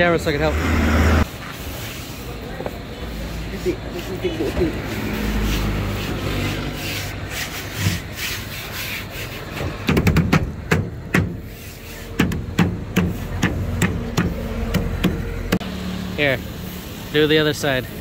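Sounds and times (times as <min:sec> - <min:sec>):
sharp taps and knocks: 0:09.6 - 0:11.4, 0:12.1 - 0:15.6.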